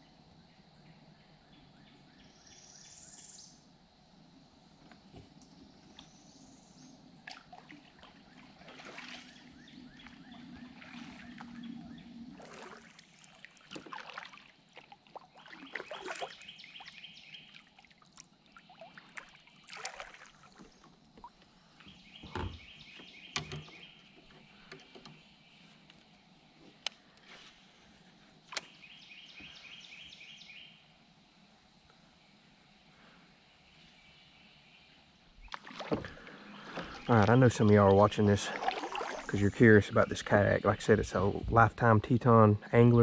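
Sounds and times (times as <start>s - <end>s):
water dripping from paddle: 7.2s - 25.2s, 35.4s - 39.4s
kayak paddle splashing water: 7.2s - 25.3s, 35.4s - 39.6s
paddle knocks: 22.2s - 25.2s.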